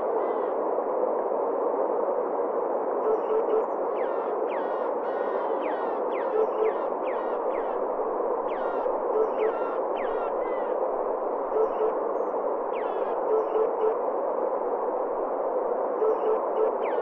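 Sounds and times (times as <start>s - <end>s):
bird singing low oop notes: 3.0s - 7.8s, 8.4s - 10.8s, 11.4s - 14.0s, 16.0s - 17.0s.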